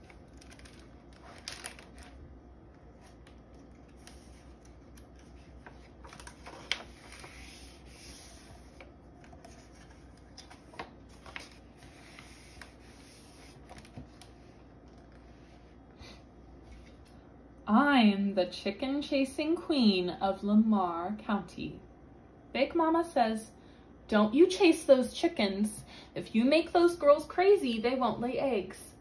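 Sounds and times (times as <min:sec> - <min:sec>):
book pages rustling: 0:00.0 - 0:02.2, 0:02.8 - 0:15.7.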